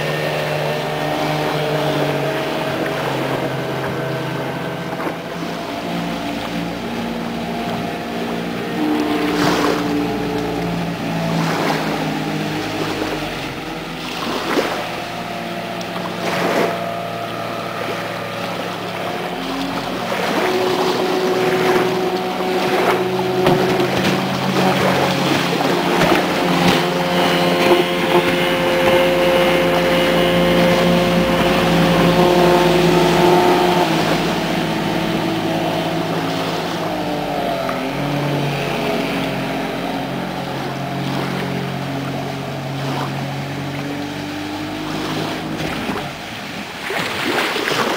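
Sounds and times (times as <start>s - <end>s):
speedboat engines passing: 0.0s - 47.9s
water rushing from hulls: 0.0s - 47.9s.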